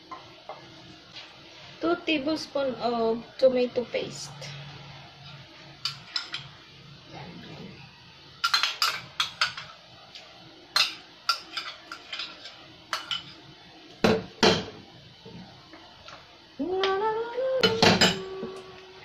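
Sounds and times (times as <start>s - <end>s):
utensils knocking on frying pan: 14.0s - 14.8s.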